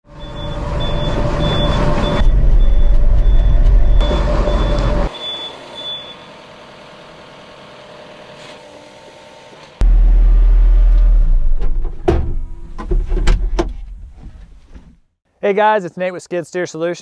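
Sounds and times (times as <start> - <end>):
warning alarm beeping: 0.1 - 6.4
excavator diesel engine running: 0.1 - 7.6.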